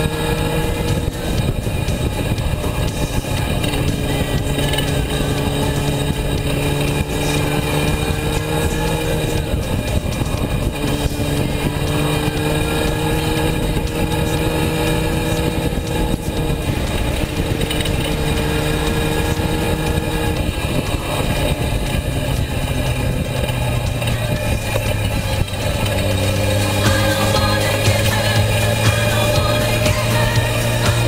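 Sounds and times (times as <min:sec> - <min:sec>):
heavy wind rush: 0:00.0 - 0:30.6
motorcycle engine at high revs: 0:00.0 - 0:31.0.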